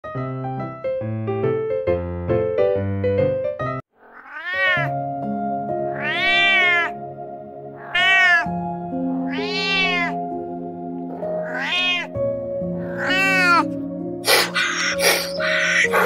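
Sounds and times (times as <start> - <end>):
cat meowing: 4.0 - 5.0, 5.8 - 7.0, 7.7 - 10.2, 11.1 - 12.2, 12.8 - 13.7, 14.4 - 16.0
soft background music: 4.7 - 16.0.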